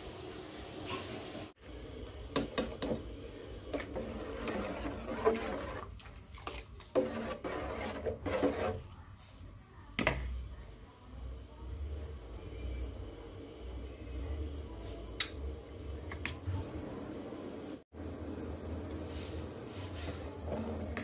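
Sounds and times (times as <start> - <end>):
metal ladle scraping a pot: 3.6 - 8.9.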